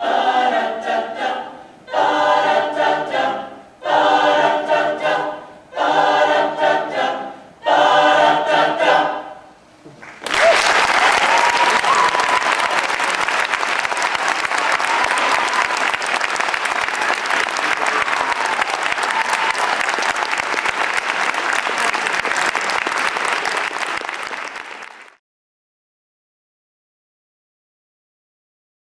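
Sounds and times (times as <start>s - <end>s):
audience applauding: 9.9s - 25.2s.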